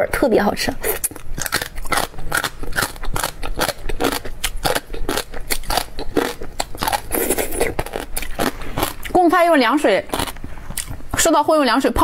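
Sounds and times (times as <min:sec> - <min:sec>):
slurping and chewing: 0:00.8 - 0:09.2, 0:10.1 - 0:11.3.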